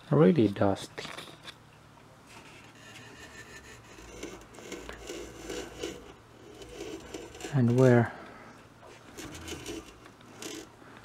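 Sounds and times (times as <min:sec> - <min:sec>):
faint scraping and rubbing: 0:02.2 - 0:11.0.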